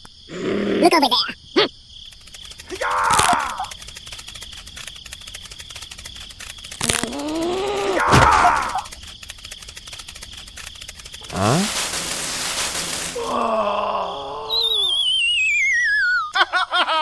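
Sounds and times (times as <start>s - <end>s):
falling wobbling whistle: 14.5s - 16.3s
rising whistle: 14.5s - 16.3s.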